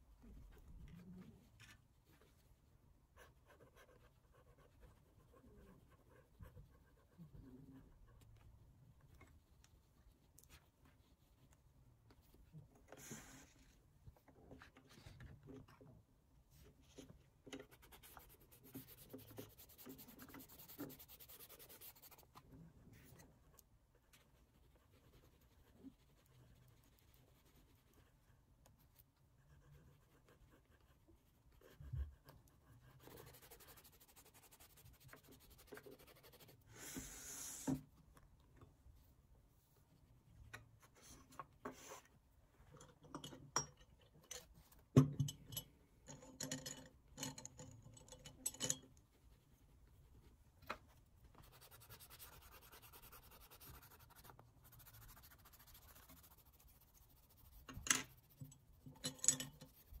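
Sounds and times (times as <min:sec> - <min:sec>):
pastel scratching on paper: 0:16.9 - 0:22.4, 0:24.2 - 0:37.7, 0:51.3 - 1:00.0.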